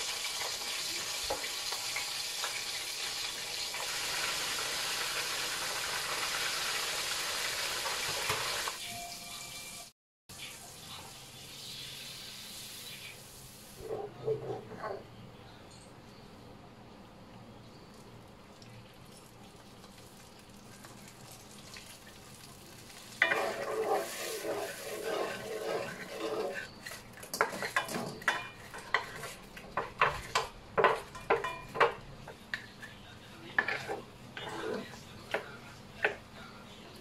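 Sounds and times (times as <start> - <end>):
sauce sizzling in a wok: 0.0 - 8.9, 9.5 - 13.8, 22.6 - 29.5
spatula knocking and scraping pan: 13.8 - 15.0, 23.2 - 32.6, 33.6 - 36.2.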